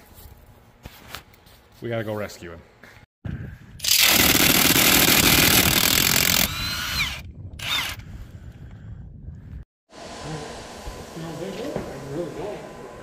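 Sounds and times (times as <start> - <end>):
cordless power tool whining: 3.8 - 8.1.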